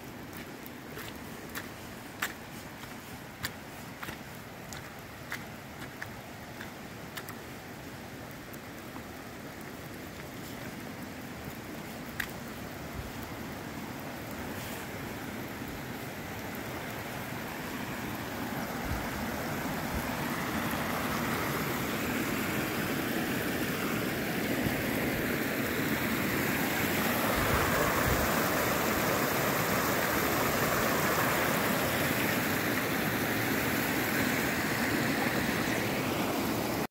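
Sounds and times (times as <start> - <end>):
stream rushing over rocks: 0.0 - 36.9.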